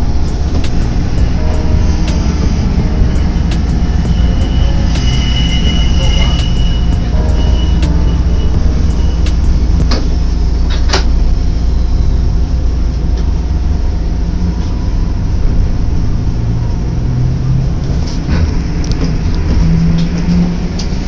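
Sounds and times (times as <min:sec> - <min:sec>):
streetcar wheels rumbling on rail: 0:00.0 - 0:21.0.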